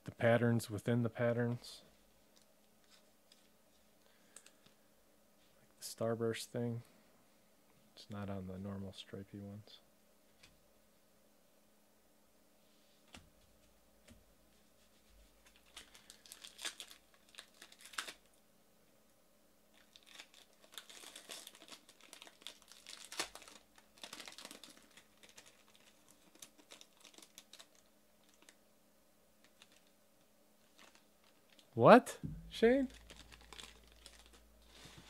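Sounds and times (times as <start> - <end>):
foil wrapper crinkling and tearing: 15.4 - 18.4, 19.7 - 28.6, 29.4 - 29.9, 30.6 - 31.7, 32.7 - 35.0.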